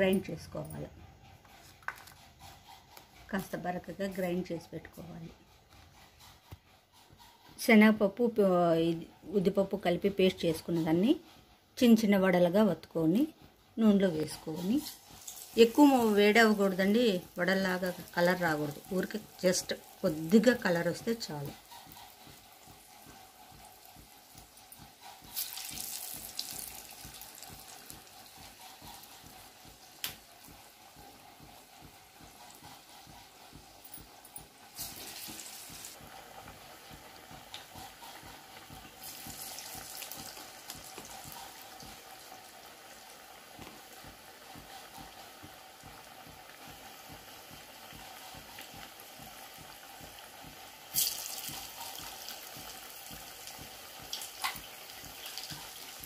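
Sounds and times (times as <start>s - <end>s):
food deep-frying in hot oil: 14.0s - 32.6s, 34.7s - 56.0s.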